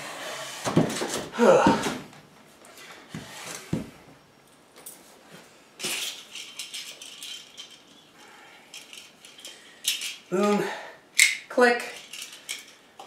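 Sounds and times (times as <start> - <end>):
metal handcuffs rattling and clinking: 5.8 - 10.3, 11.2 - 13.0.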